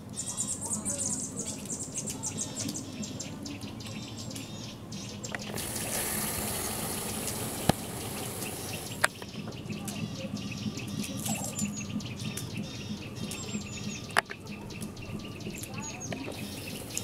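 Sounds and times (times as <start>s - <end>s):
birds chirping: 0.0s - 17.0s
steady hiss: 5.4s - 9.2s, 16.3s - 17.0s.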